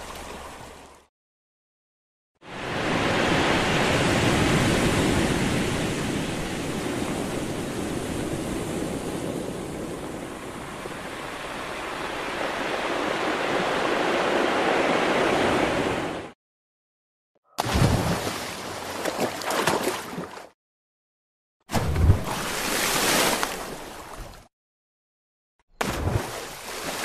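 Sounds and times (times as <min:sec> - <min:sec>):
ocean waves surf: 0:02.4 - 0:16.4, 0:21.9 - 0:24.4.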